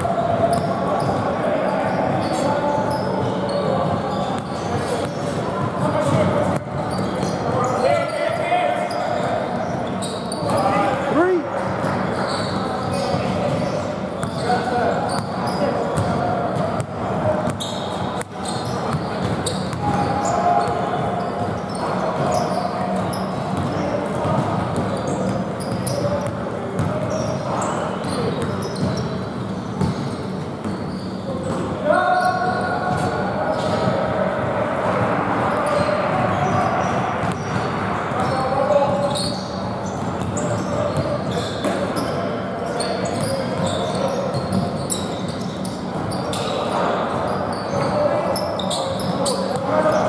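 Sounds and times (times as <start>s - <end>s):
sneaker squeaks: 0.0s - 34.1s, 35.5s - 50.0s
players' voices: 0.0s - 50.0s
basketball bouncing on court: 16.0s - 21.6s, 22.2s - 27.3s, 28.0s - 30.8s, 35.7s - 38.3s, 39.9s - 42.1s.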